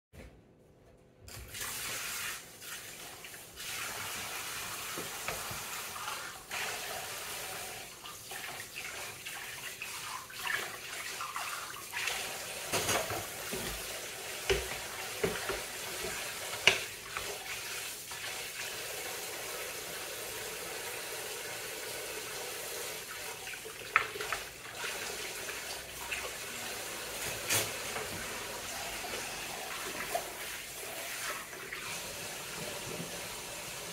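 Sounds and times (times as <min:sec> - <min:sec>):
tap water running and splashing: 0:01.3 - 0:33.9.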